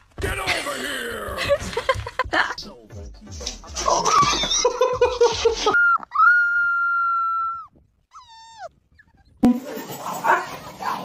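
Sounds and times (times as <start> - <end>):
dog whining: 5.8 - 9.4.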